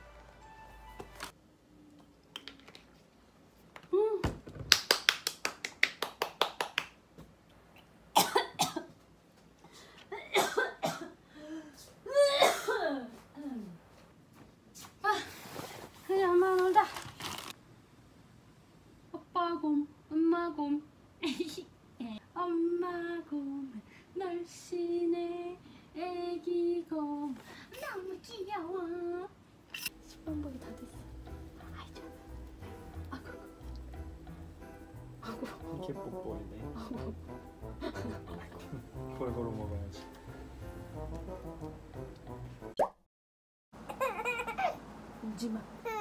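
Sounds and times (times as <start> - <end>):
hand claps: 4.7 - 7.0
person coughing: 8.2 - 8.9, 10.1 - 11.2, 12.1 - 13.0
woman singing to a baby: 19.2 - 20.8, 22.2 - 27.4, 28.5 - 29.4.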